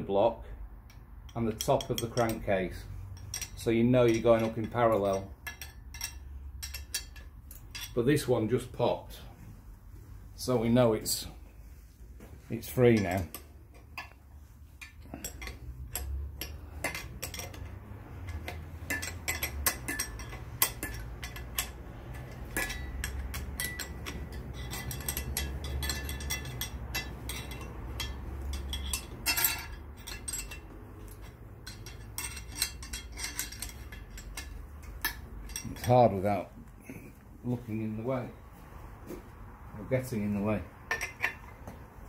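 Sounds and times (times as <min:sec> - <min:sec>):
metal tool clicking on bolts: 0:00.8 - 0:08.1, 0:12.9 - 0:14.2, 0:14.8 - 0:36.1.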